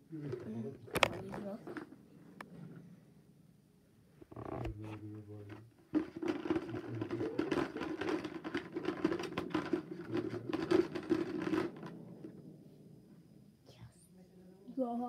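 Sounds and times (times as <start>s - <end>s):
scratchy rubbing with rapid clicks: 5.6s - 12.3s.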